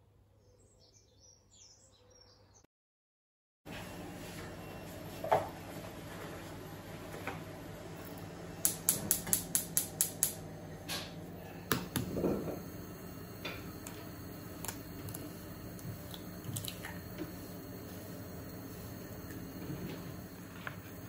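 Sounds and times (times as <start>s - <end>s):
gas burner lighting rush: 7.2s - 21.0s
gas hob igniter clicking: 8.6s - 12.7s.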